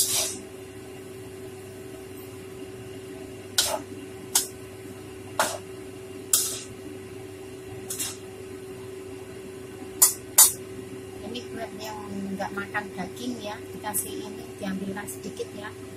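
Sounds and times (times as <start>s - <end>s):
metal spatula scraping wok: 0.0s - 0.4s, 6.4s - 6.7s, 7.9s - 8.2s
steady low hum: 0.0s - 15.9s.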